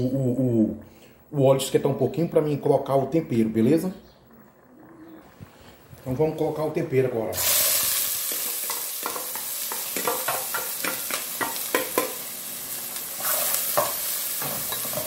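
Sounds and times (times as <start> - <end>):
vegetables sizzling in hot oil: 7.3 - 15.0.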